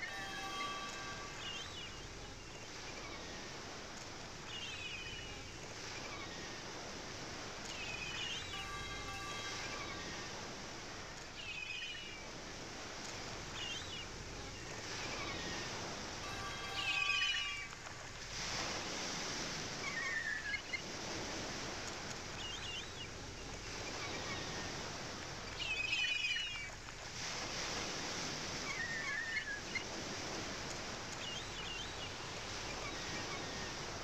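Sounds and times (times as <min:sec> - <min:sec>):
faint held synthesizer tones: 0:00.0 - 0:20.8
ocean surf: 0:00.0 - 0:34.0
short descending bird calls: 0:15.1 - 0:17.7.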